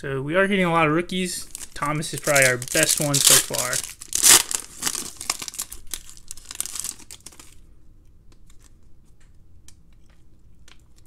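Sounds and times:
foil crinkling: 0:01.4 - 0:07.6
foil wrapper ripping: 0:01.4 - 0:07.6.

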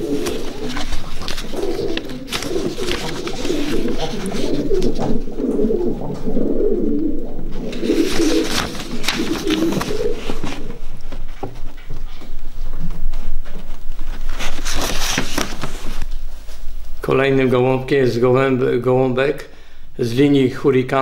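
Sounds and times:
pigeons cooing: 0:00.0 - 0:12.7.

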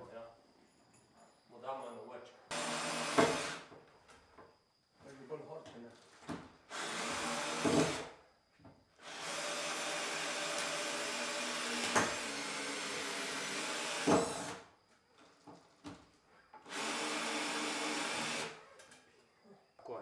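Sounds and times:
cordless drill driving screws: 0:02.5 - 0:03.7, 0:06.7 - 0:08.1, 0:09.0 - 0:14.6, 0:16.6 - 0:18.6.

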